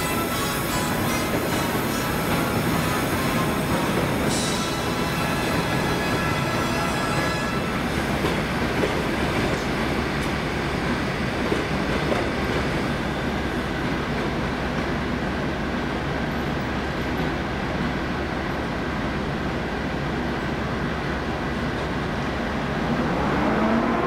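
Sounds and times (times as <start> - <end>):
electric locomotive humming: 0.0 - 24.0.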